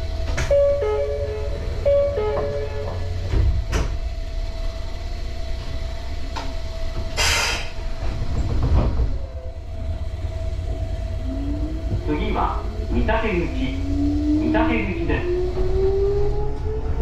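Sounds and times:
constant hum: 0:00.0 - 0:17.0
train low rumble: 0:00.0 - 0:17.0
short air hiss: 0:07.2 - 0:07.8.

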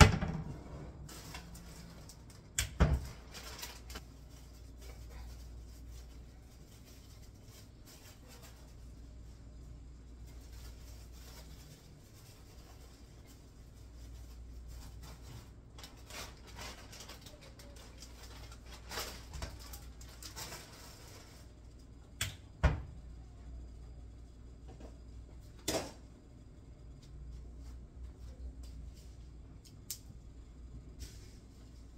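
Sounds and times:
low steady hum: 0:00.0 - 0:31.9
plastic bag rustling: 0:01.0 - 0:21.6.

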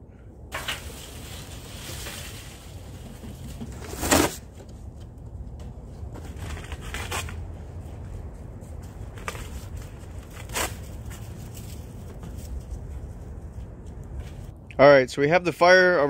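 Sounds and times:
dry leaves and cardboard rustling: 0:00.5 - 0:04.6, 0:06.0 - 0:14.5
cardboard crunch: 0:00.6 - 0:04.7, 0:06.1 - 0:07.4, 0:08.9 - 0:12.9.

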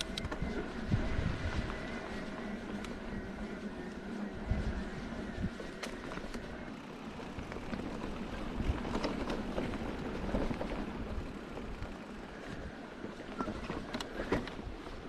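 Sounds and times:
wind on microphone: 0:00.0 - 0:06.7
tyres rumbling on stony ground: 0:00.2 - 0:15.0.

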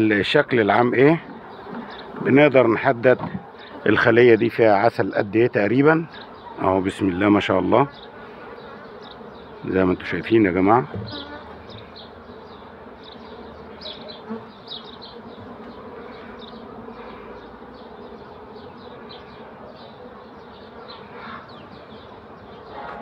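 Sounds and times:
honeybees buzzing: 0:00.0 - 0:23.0.

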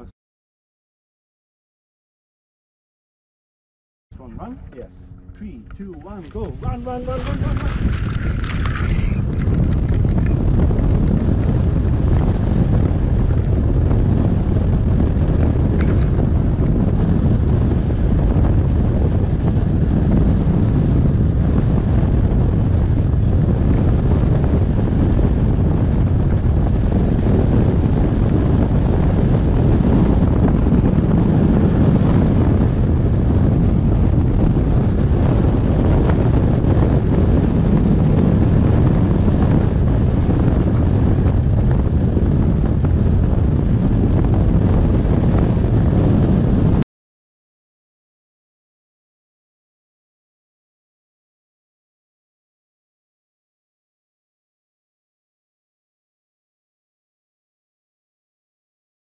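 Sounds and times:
wind buffeting microphone: 0:04.1 - 0:46.8.

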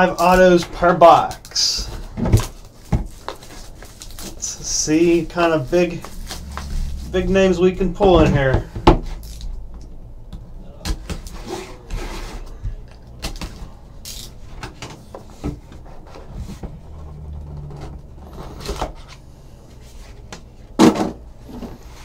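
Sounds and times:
plastic wrap and cardboard rustling: 0:00.0 - 0:07.8.

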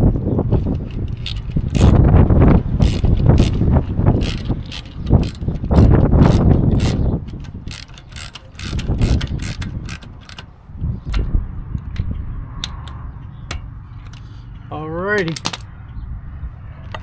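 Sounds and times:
ratchet wrench clicking: 0:00.6 - 0:10.5.

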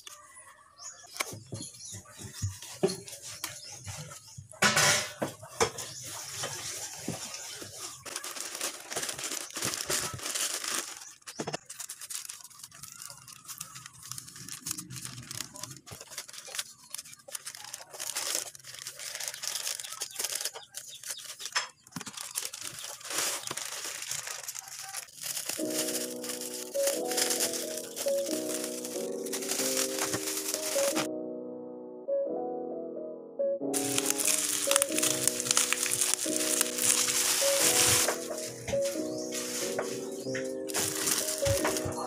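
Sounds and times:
bubble wrap rustling: 0:01.1 - 0:31.1, 0:33.8 - 0:42.0
plastic pouch crinkling and tearing: 0:05.9 - 0:31.1, 0:33.8 - 0:42.0.

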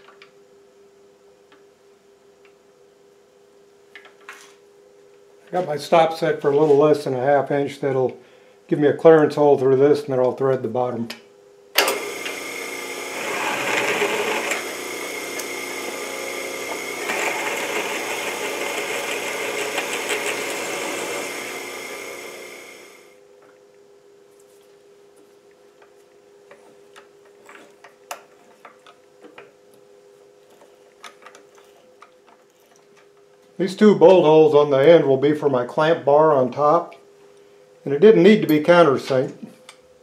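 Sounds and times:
drill press drilling steel: 0:11.8 - 0:23.1
motor winding down: 0:11.8 - 0:23.2.

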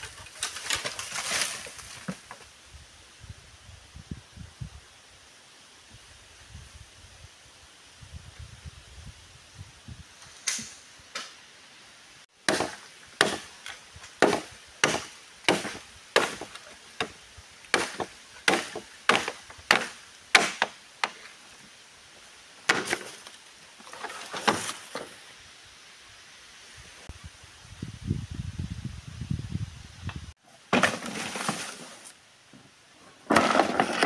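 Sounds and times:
machete chopping bamboo: 0:12.4 - 0:21.2, 0:22.7 - 0:23.2.

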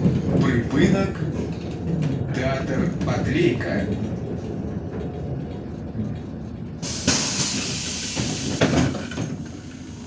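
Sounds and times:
clunks: 0:00.0 - 0:09.6
bus engine rumble: 0:00.0 - 0:10.0
compressed air hiss: 0:06.8 - 0:08.6.

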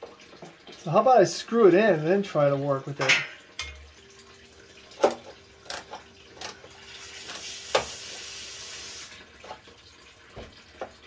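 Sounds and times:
steady hiss: 0:07.1 - 0:09.2.

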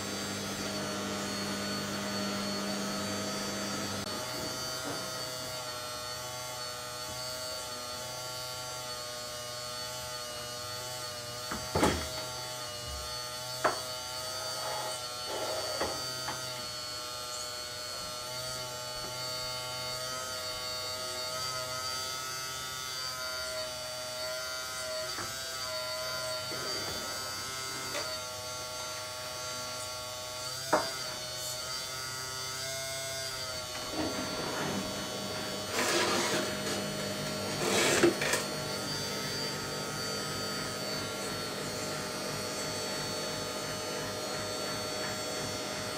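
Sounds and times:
hydraulic pump whining: 0:00.0 - 0:07.0, 0:26.3 - 0:28.3, 0:33.4 - 0:45.9.

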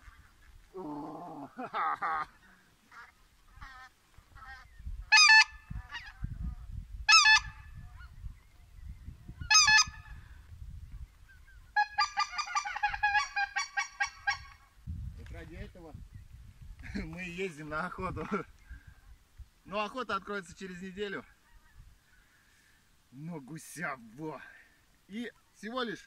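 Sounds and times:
geese honking: 0:02.8 - 0:06.2, 0:07.1 - 0:08.1, 0:09.5 - 0:10.1, 0:11.7 - 0:14.6.

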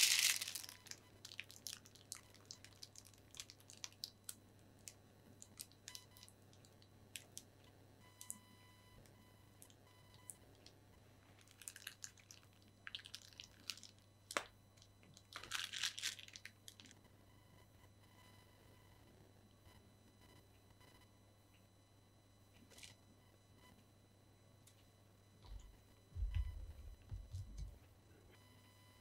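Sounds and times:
plastic piping bag crinkling: 0:00.0 - 0:07.3, 0:11.4 - 0:17.0.

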